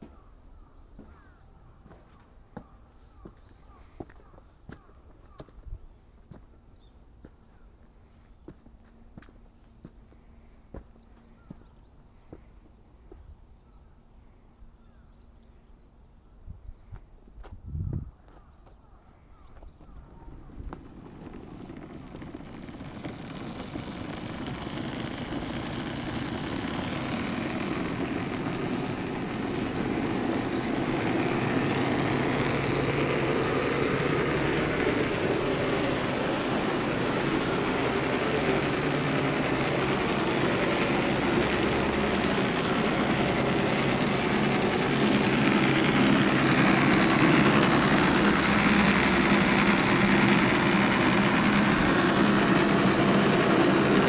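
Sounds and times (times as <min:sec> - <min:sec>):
funicular cable rumbling whir: 0:19.6 - 0:54.0.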